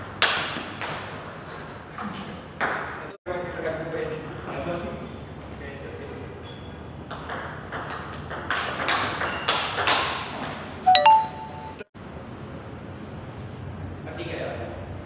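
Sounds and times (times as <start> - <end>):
loud ringing ping: 10.9 - 11.8.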